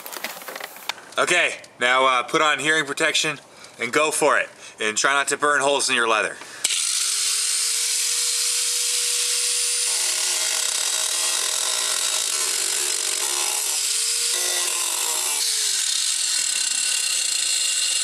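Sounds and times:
angle grinder cutting metal: 0:06.6 - 0:18.0.

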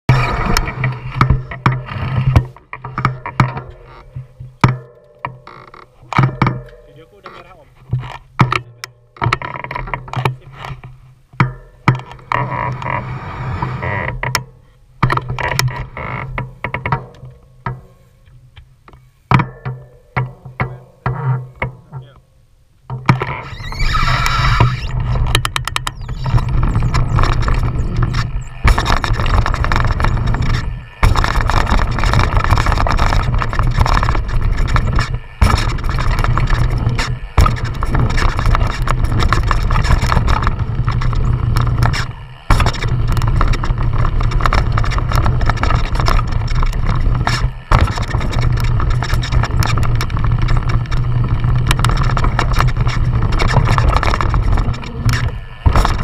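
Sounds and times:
bike tyres rolling over dirt: 0:00.1 - 0:14.3, 0:22.9 - 0:56.0
wind on microphone: 0:23.3 - 0:56.0.

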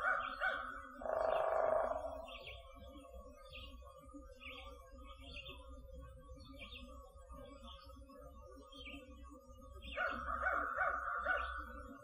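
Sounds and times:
small bird chirping: 0:00.0 - 0:02.8.

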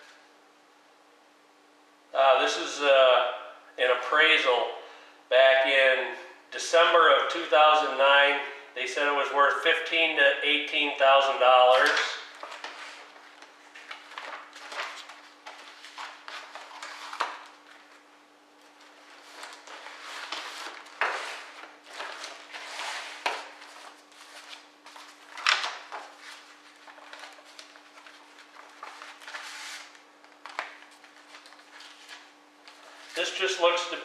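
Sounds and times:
paper rustling: 0:11.7 - 0:18.0, 0:18.7 - 0:33.5.

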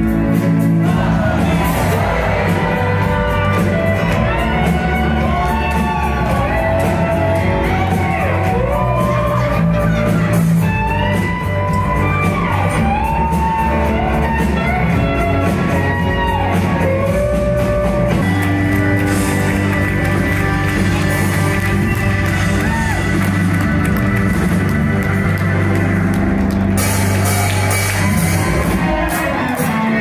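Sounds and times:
rock band playing live: 0:00.0 - 0:30.0
crowd shouting: 0:00.8 - 0:10.5.

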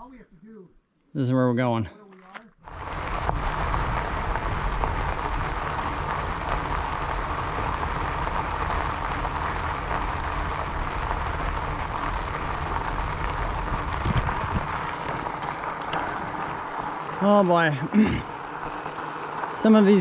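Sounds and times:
wind on microphone: 0:02.6 - 0:16.9
bicycle tyres on gravel: 0:02.6 - 0:20.0.

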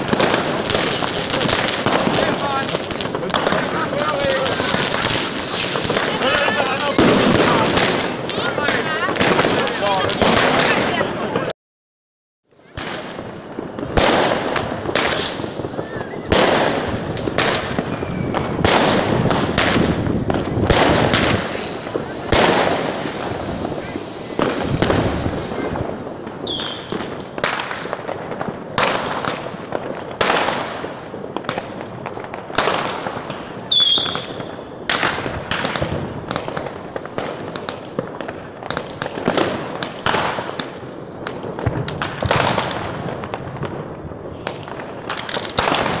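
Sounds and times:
firework bangs and pops: 0:00.0 - 0:11.5, 0:12.5 - 0:46.0
firework whistles: 0:00.7 - 0:08.4, 0:15.0 - 0:19.2, 0:20.7 - 0:27.0, 0:33.7 - 0:34.7.

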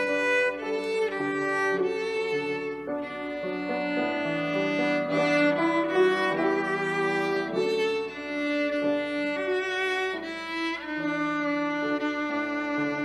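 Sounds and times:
slow bowed string music: 0:00.0 - 0:13.0.

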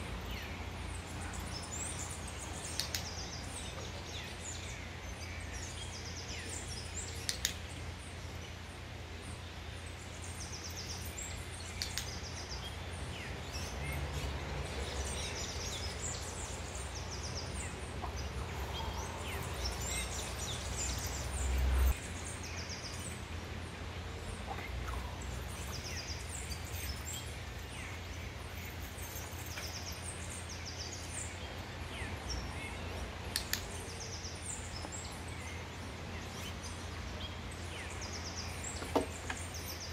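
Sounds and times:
birds chirping and trilling: 0:00.0 - 0:39.9
sharp clicks: 0:02.6 - 0:03.3, 0:07.2 - 0:07.6, 0:11.6 - 0:12.3, 0:33.3 - 0:33.8.

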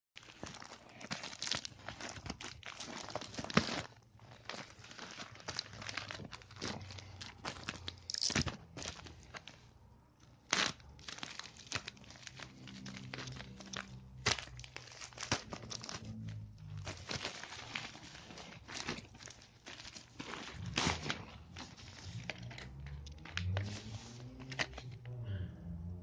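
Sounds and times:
plastic bag rustling and crinkling: 0:00.2 - 0:24.9.

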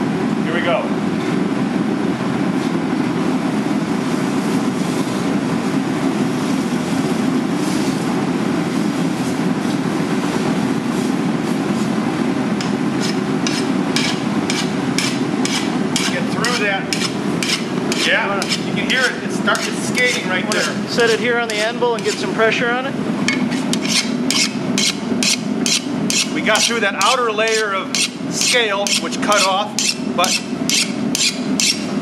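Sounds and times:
forge burner roaring: 0:00.0 - 0:32.0
file rasping on steel: 0:13.0 - 0:22.3, 0:23.3 - 0:31.9.

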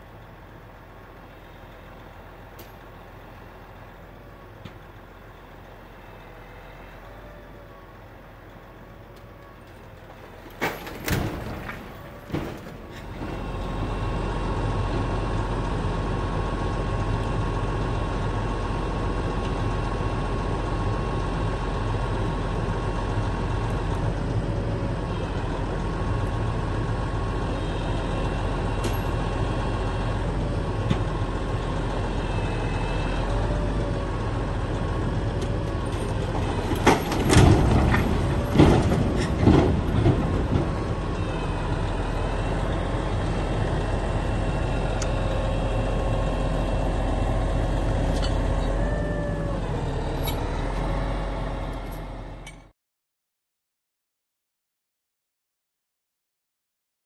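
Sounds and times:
diesel engine under load: 0:00.0 - 0:52.8
truck bangs and crashes: 0:10.3 - 0:15.0, 0:35.4 - 0:42.9.

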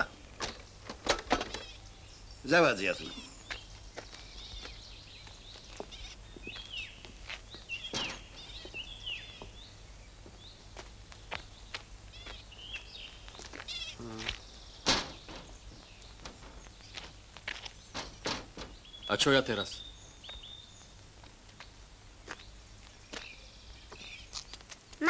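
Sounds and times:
small birds chirping: 0:00.0 - 0:25.0
wooden window frame knocking: 0:18.0 - 0:18.8.

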